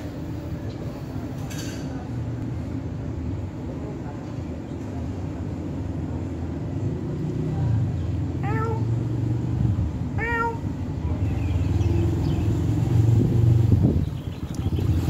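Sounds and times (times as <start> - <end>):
cat meowing: 8.4 - 8.9, 10.2 - 10.8.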